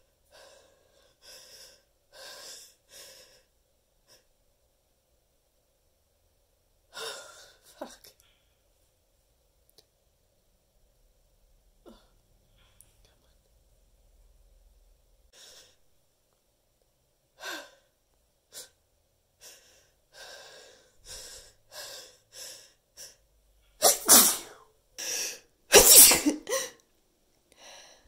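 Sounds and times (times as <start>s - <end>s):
person gasping breaths: 19.4s - 23.2s, 27.5s - 28.0s
person sneezing loudly: 23.8s - 24.6s, 25.7s - 26.8s.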